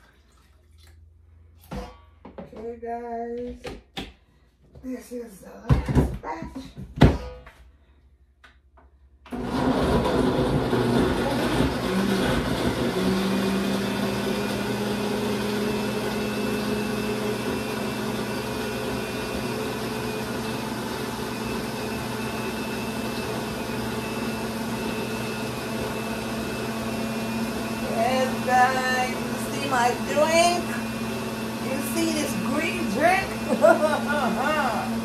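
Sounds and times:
electric blender motor humming: 0:09.3 - 0:35.0.

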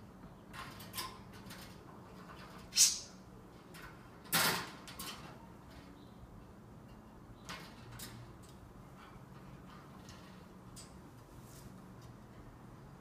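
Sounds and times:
parrot scraping metal cage bars: 0:02.2 - 0:03.2.

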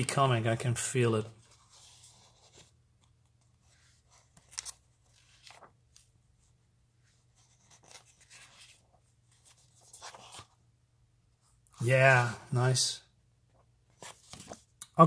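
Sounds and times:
paper pages rustling: 0:01.4 - 0:06.1, 0:07.0 - 0:10.6, 0:13.9 - 0:14.8.

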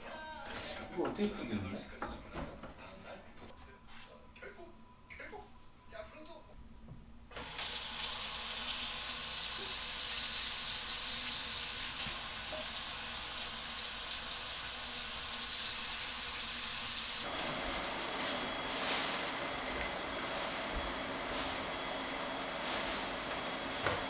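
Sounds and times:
vacuum cleaner running: 0:07.3 - 0:24.0
tap water running into sink: 0:07.4 - 0:17.2.

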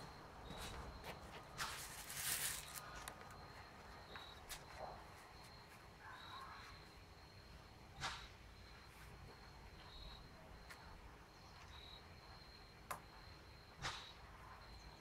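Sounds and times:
faint high steady tone: 0:00.0 - 0:15.0
paper rustling: 0:00.7 - 0:03.4.

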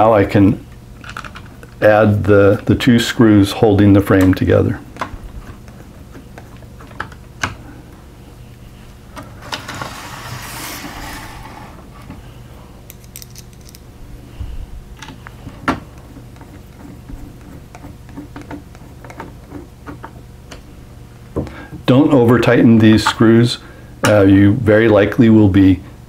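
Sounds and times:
clock scraping on table: 0:09.4 - 0:11.9.

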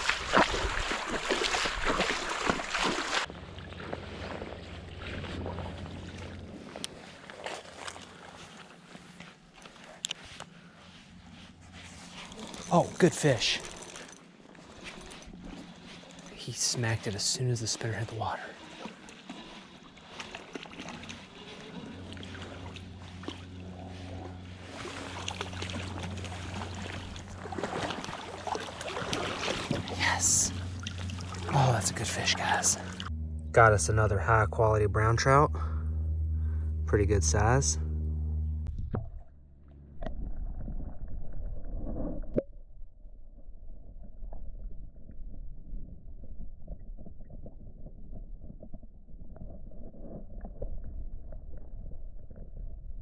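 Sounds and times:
muffled underwater creek rumble: 0:00.0 - 0:08.4, 0:17.6 - 0:53.0
water splashing: 0:00.0 - 0:08.5, 0:12.3 - 0:33.1
fishing reel whirring: 0:12.1 - 0:16.3.

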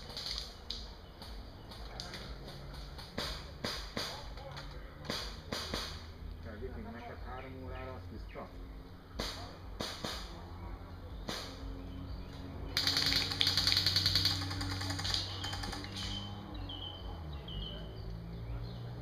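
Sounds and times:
birds chirping: 0:00.0 - 0:19.0
airsoft gun single cracks: 0:05.0 - 0:06.2, 0:09.2 - 0:10.4, 0:11.2 - 0:11.6
airsoft gun full-auto burst: 0:12.8 - 0:16.2.

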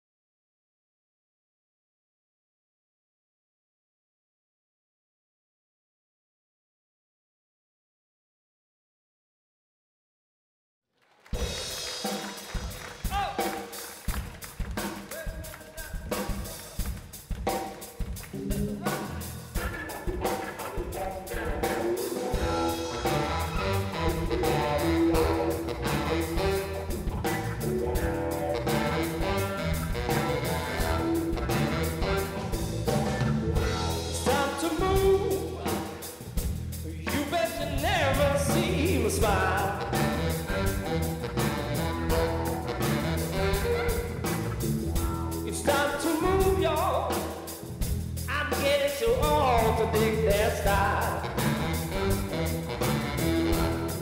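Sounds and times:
drum kit: 0:11.2 - 0:54.0
electric guitar: 0:16.1 - 0:36.7, 0:37.5 - 0:48.7, 0:49.3 - 0:54.0
heavy bass line: 0:18.2 - 0:54.0.

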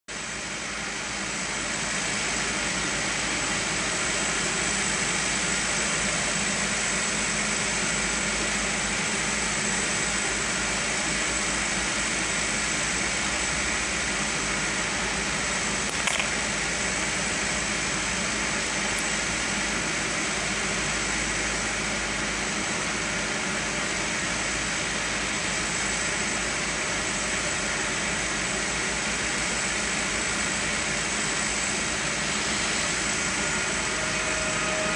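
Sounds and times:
train ventilation fans humming: 0:00.1 - 0:34.9
thin high whine: 0:31.4 - 0:34.9.

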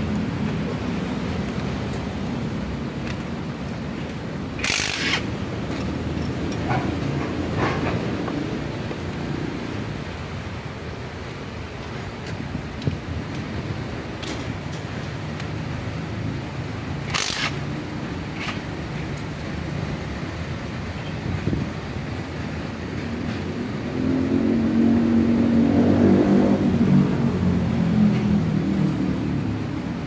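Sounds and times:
impact wrench burst: 0:04.6 - 0:05.4, 0:17.0 - 0:17.6.

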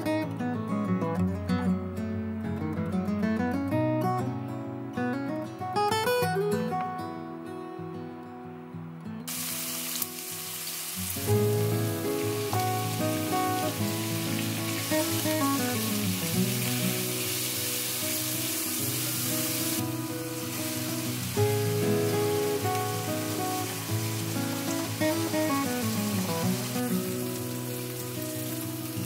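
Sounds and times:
gentle background music: 0:00.3 - 0:29.0
onion sizzling in oil: 0:09.3 - 0:29.0.

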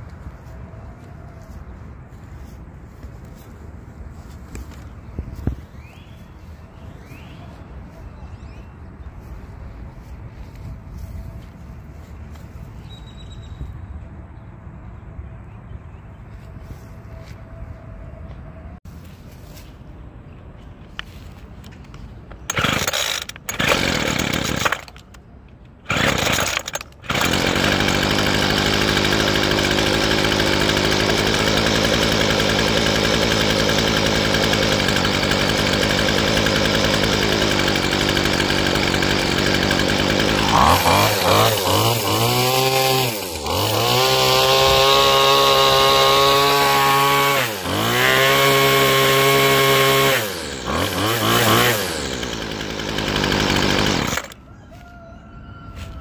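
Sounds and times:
starter cord pulls: 0:22.4 - 0:25.2, 0:25.9 - 0:46.2, 0:48.8 - 0:54.4
string trimmer engine revving: 0:22.4 - 0:25.2, 0:25.8 - 0:54.4.

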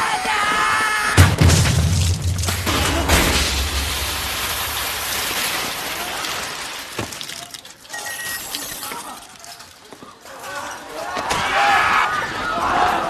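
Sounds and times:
explosion rushing noise: 0:01.2 - 0:05.4.

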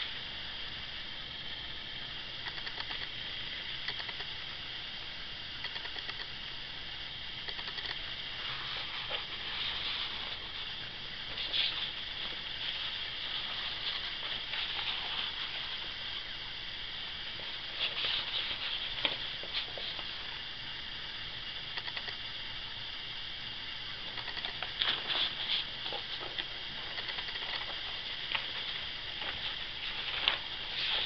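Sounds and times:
recording hiss: 0:00.0 - 0:31.0
faint rustles and clicks: 0:07.5 - 0:16.4, 0:17.3 - 0:20.4, 0:24.0 - 0:31.0.

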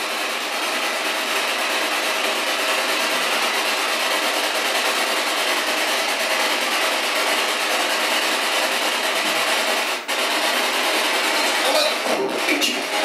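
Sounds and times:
radio static: 0:11.3 - 0:13.0.

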